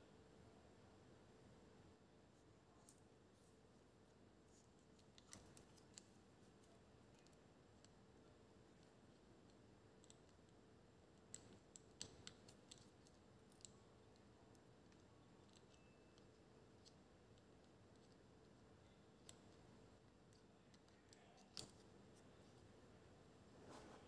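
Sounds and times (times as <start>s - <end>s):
faint sharp clicks and taps: 4.5s - 22.7s.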